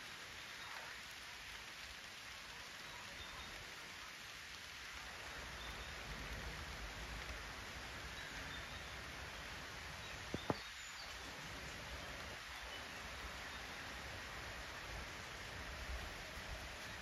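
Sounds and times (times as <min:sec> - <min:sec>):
outdoor ambient hiss: 0:00.0 - 0:17.0
distant bird chirps: 0:10.0 - 0:11.2.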